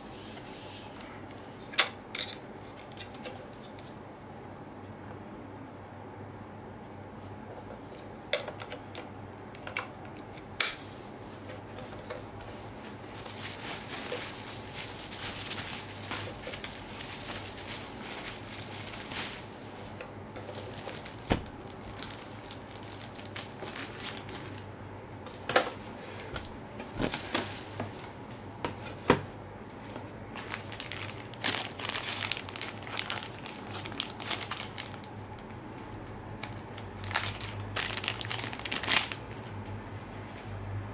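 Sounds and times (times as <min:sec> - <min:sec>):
plastic packaging crinkling: 0:12.9 - 0:28.2, 0:30.3 - 0:39.4.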